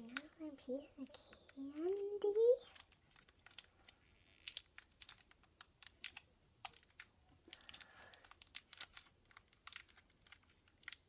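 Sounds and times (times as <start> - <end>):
plastic bag crinkling and tearing: 1.0 - 11.0.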